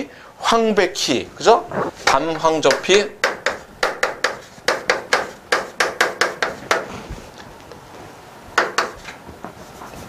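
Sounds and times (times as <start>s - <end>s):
chalk tapping on blackboard: 2.0s - 6.9s, 8.6s - 9.2s.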